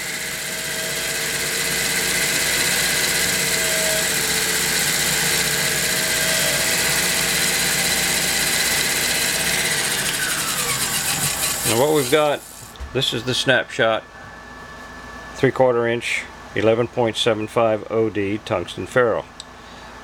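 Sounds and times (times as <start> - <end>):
lathe cutting: 0.0 - 12.8.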